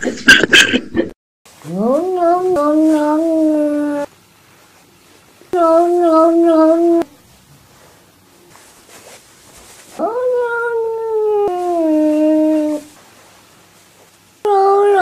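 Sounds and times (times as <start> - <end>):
cat yowling: 1.6 - 4.1, 10.0 - 13.0.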